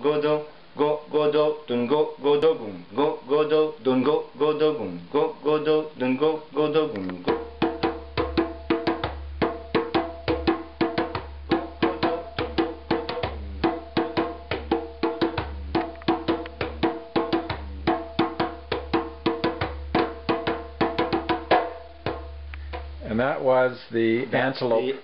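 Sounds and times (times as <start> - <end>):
djembe played with hands: 7.2 - 23.0.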